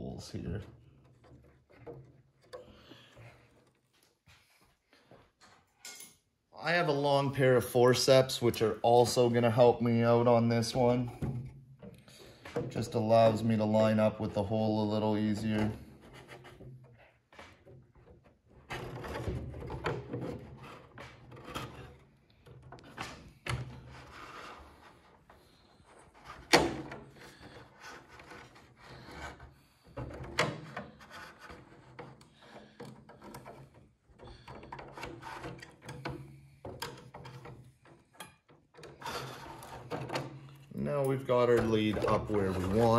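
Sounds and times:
metal tools scraping wood: 14.6 - 23.0, 23.7 - 42.9.

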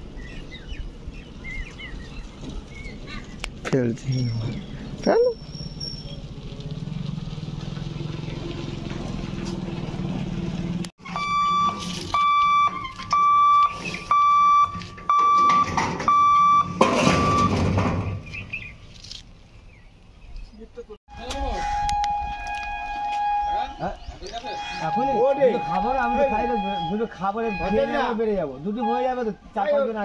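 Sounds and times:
level crossing electronic beeping: 11.1 - 17.6.

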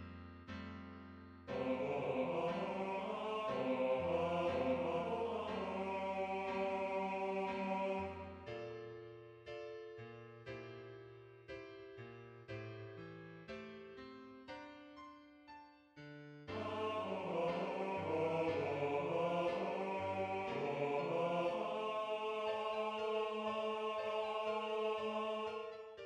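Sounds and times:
slow piano chords: 0.0 - 26.0
choir singing: 1.5 - 8.5, 16.5 - 26.0.

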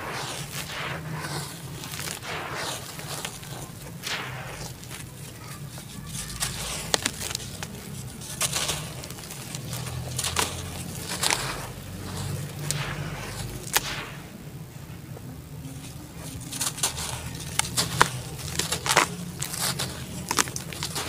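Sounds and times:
dry dirt crumbling onto water: 0.0 - 14.2
dirt lumps snapping: 0.0 - 14.6, 15.7 - 21.0.

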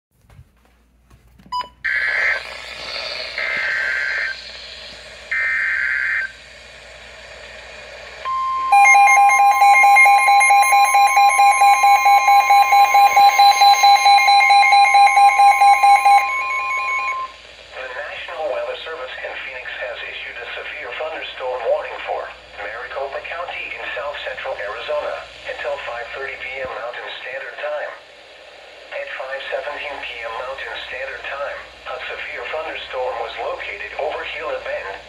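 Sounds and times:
steady warning alarm tone: 1.6 - 6.4, 8.2 - 18.7
buzzing data bursts: 1.9 - 6.3, 8.7 - 17.3
radio hiss: 1.9 - 11.0, 15.7 - 35.0
rapid alert beeping: 8.3 - 17.3.

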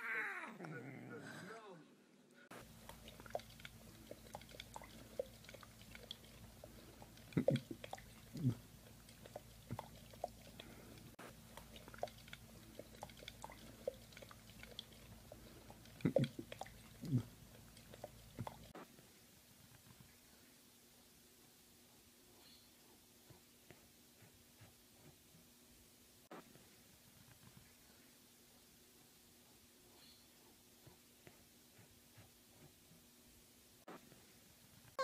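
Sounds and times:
dog licking glass: 2.6 - 18.7.

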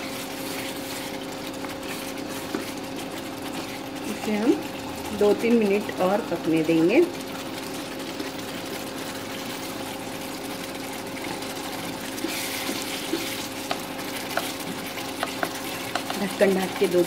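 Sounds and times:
gravy simmering in a pan: 0.0 - 17.0
spatula stirring: 0.0 - 17.0
spatula tapping pan: 12.6 - 16.8.

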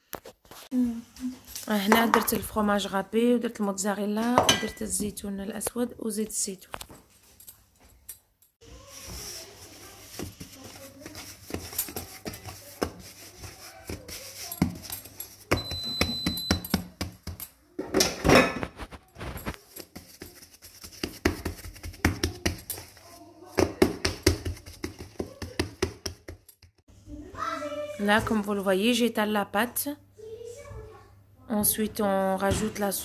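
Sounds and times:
dough rubbing on countertop: 8.7 - 15.5, 18.8 - 26.8
hands patting dough: 8.9 - 17.5, 18.8 - 26.9.

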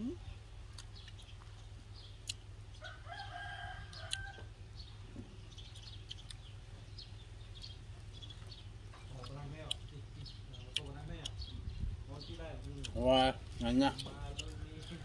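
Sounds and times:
rooster crowing: 2.8 - 4.5.

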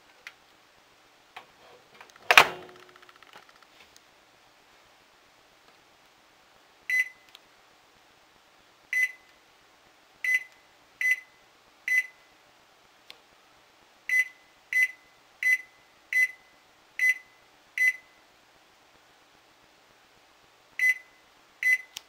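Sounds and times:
microwave button beeps: 9.0 - 9.2, 20.8 - 22.0.

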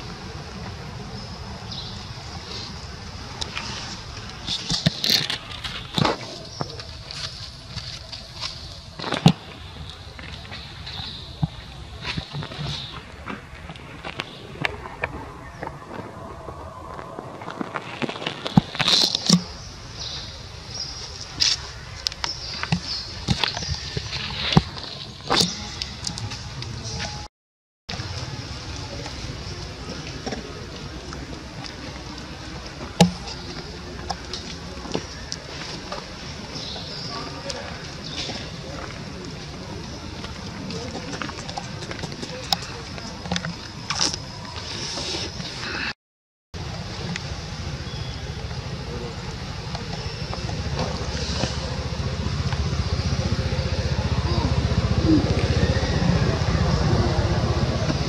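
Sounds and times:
steady outdoor background hiss: 0.0 - 27.3, 27.9 - 46.0, 46.6 - 58.0
motor rumbling: 46.6 - 58.0.

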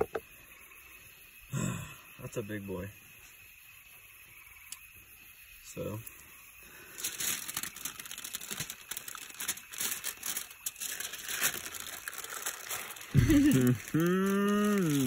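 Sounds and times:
aluminium foil crinkling: 6.7 - 15.0.

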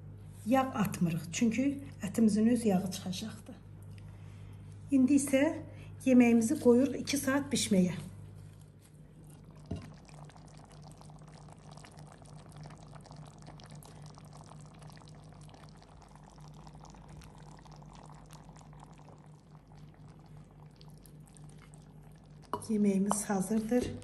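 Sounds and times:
low steady hum: 0.0 - 24.0
stew bubbling in a pot: 6.2 - 24.0.

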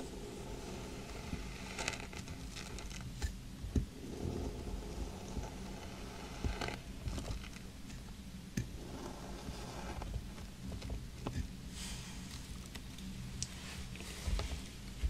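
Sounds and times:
sand crumbling and scraping: 0.0 - 3.2, 3.9 - 7.7.

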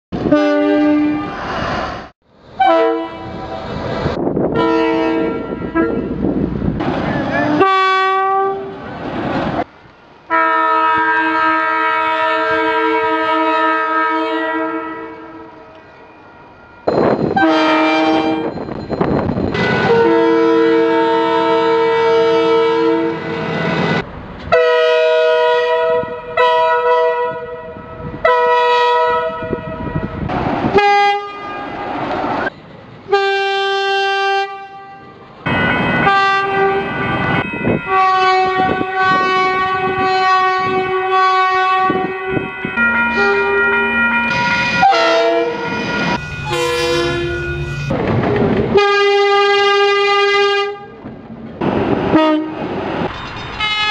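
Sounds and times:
locomotive air horns: 2.6 - 3.4, 4.6 - 6.2, 7.4 - 8.8, 10.3 - 15.6, 17.3 - 18.5, 19.6 - 23.5, 24.5 - 30.1, 30.8 - 31.9, 37.9 - 42.5, 44.8 - 48.0, 48.7 - 51.0, 52.1 - 52.6.

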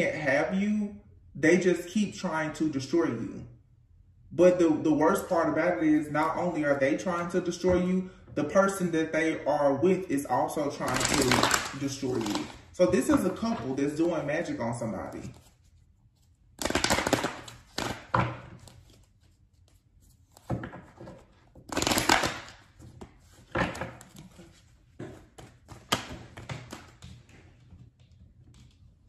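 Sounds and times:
cards being shuffled: 10.8 - 14.2, 15.0 - 27.5.

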